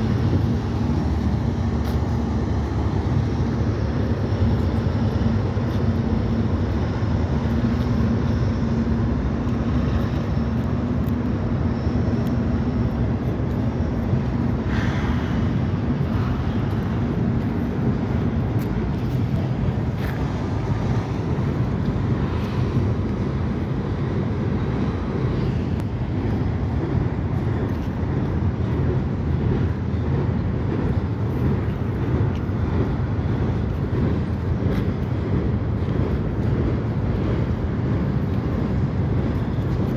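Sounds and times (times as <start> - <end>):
train wheels rumbling on rails: 0.0 - 39.9.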